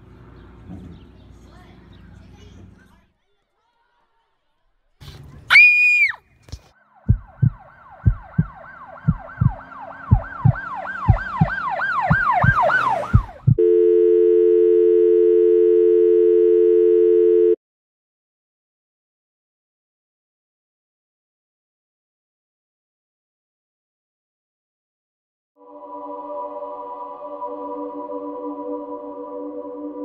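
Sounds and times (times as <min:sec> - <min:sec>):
siren-like falling wails: 0:06.8 - 0:13.6
heartbeat-like thumps: 0:07.1 - 0:13.6
low electronic tone: 0:13.4 - 0:17.6.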